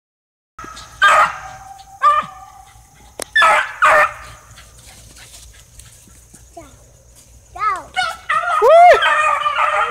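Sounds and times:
dogs barking: 0.6 - 5.8, 7.9 - 9.9.

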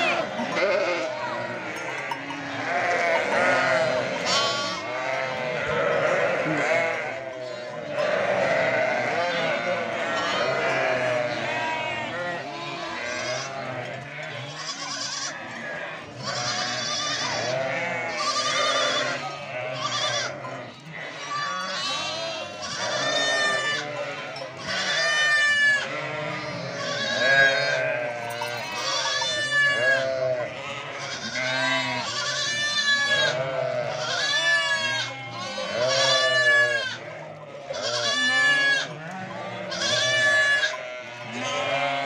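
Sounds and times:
sheep bleating: 0.0 - 42.0.

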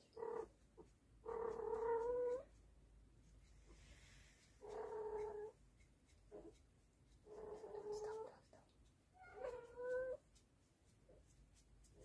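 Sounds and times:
cat yowling: 9.2 - 10.2.

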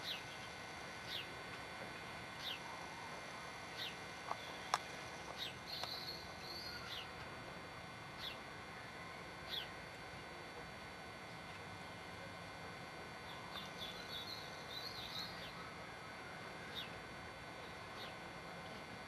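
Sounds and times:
small bird calling: 2.4 - 7.2, 8.2 - 8.5, 9.4 - 9.8, 13.2 - 15.7.

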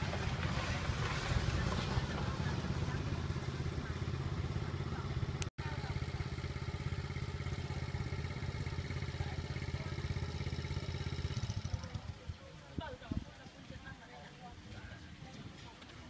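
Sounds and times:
small engine running: 0.0 - 12.3.

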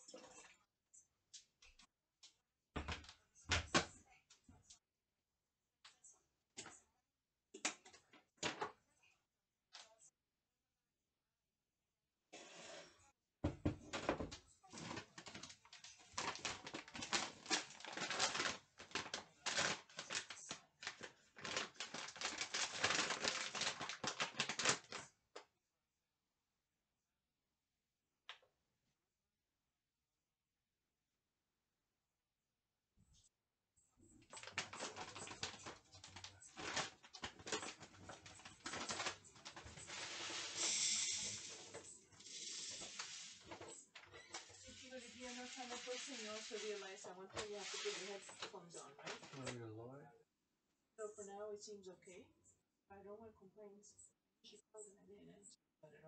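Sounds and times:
plastic packaging crinkling: 14.7 - 25.1, 34.3 - 43.7, 44.3 - 49.6.

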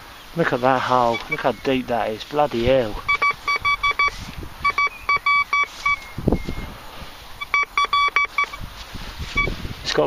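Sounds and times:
metal detector beeping: 1.0 - 1.5, 3.0 - 6.6, 7.4 - 8.6, 9.3 - 9.6.

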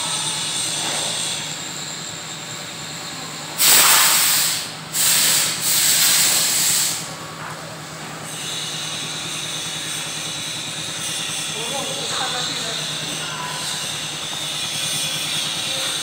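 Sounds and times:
loud hissing bursts: 3.6 - 7.1.

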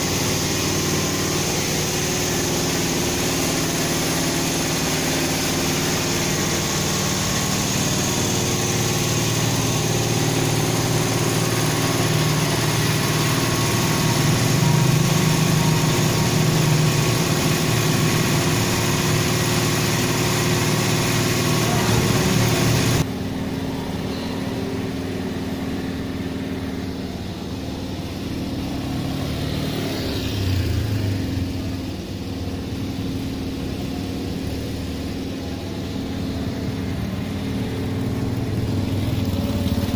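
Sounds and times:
diesel truck engine idling: 0.0 - 39.9
vehicle passing: 27.5 - 32.2.

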